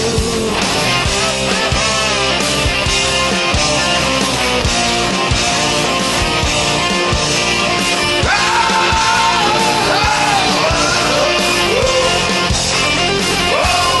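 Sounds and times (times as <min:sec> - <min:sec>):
drum beat: 0:00.0 - 0:14.0
rock music: 0:00.0 - 0:14.0
person singing: 0:08.2 - 0:12.5, 0:13.4 - 0:14.0.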